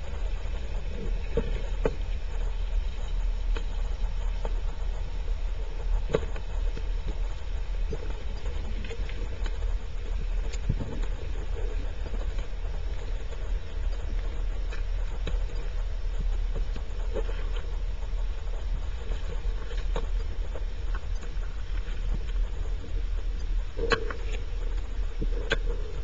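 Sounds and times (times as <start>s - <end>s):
underwater low rumble: 0.0s - 26.0s.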